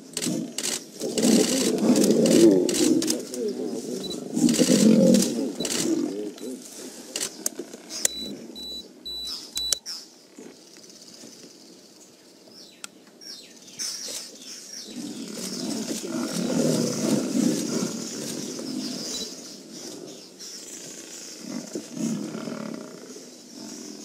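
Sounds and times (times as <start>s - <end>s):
rough animal growls: 0.0s - 7.3s, 14.9s - 24.0s.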